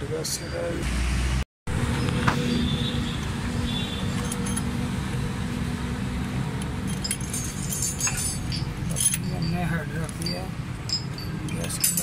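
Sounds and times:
low mechanical rumble: 1.7 - 12.0.

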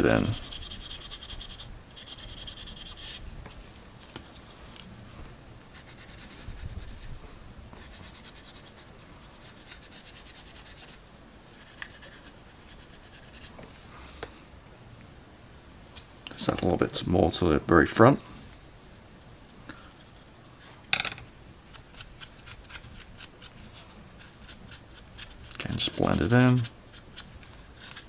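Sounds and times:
paintbrush scrubbing plastic: 21.9 - 28.0.

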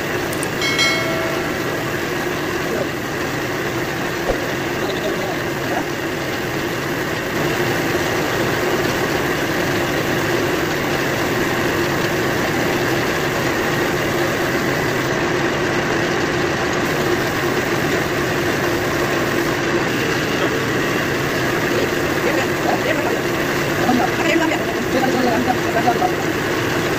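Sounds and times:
air compressor humming: 0.0 - 15.5, 16.8 - 26.9
paint spray gun hissing: 16.8 - 26.9.

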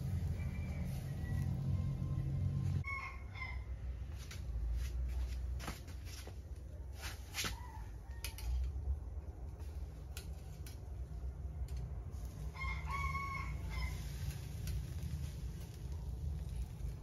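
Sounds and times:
rooster crowing: 0.0 - 3.9, 7.5 - 8.7, 12.4 - 14.3.

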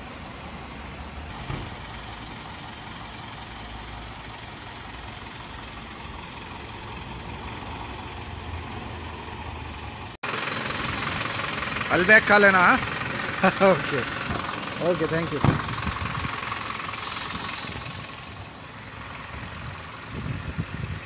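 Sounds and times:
truck engine idling: 0.0 - 21.0.

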